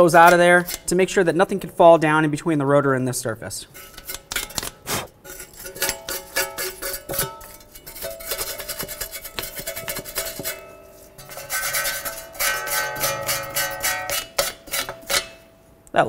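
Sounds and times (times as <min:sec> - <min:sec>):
brush scrubbing metal: 0:03.8 - 0:15.4
plucked string music: 0:05.8 - 0:15.5.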